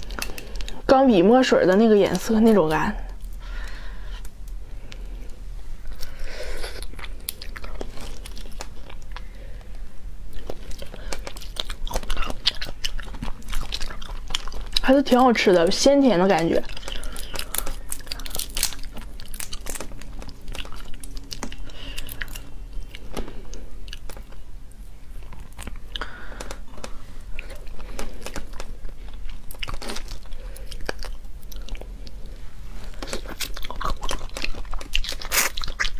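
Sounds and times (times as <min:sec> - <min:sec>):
wet chewing: 0:00.0 - 0:00.8, 0:05.8 - 0:24.4, 0:25.1 - 0:32.2, 0:32.9 - 0:35.9
shrimp shell crackling: 0:16.4 - 0:22.4.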